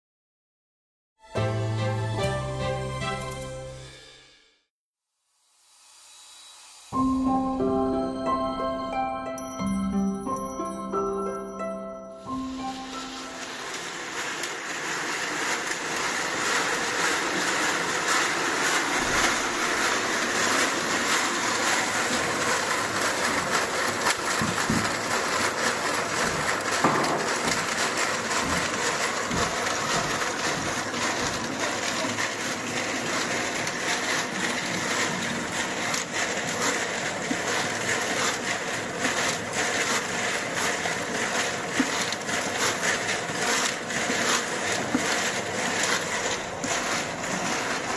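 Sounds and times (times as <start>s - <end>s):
ice crunching against metal: 18.9s - 19.6s, 20.4s - 47.9s.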